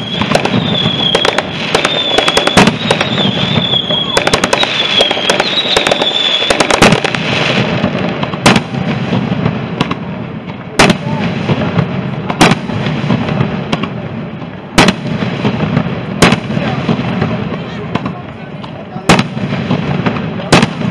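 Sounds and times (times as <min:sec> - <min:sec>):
firework high whistle: 0:00.0 - 0:07.6
fireworks bangs: 0:00.0 - 0:20.9.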